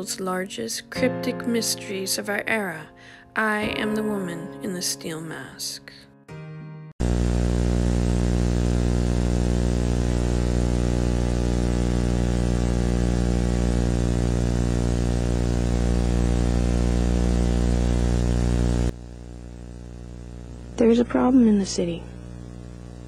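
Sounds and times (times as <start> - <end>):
electrical hum-buzz: 7.0 - 23.0
tape hiss: 7.0 - 23.0.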